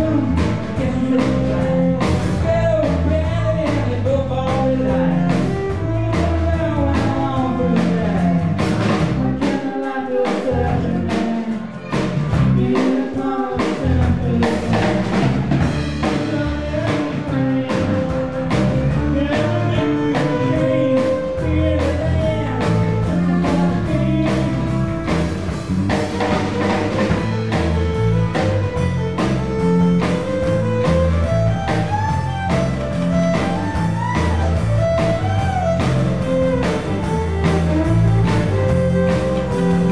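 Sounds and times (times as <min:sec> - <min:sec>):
folk band playing live: 0:00.0 - 0:39.9.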